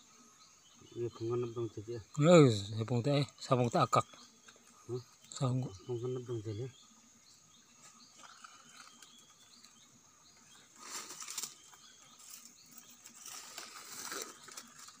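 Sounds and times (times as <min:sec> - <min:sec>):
dry leaves and bamboo rustling: 0:10.4 - 0:15.0.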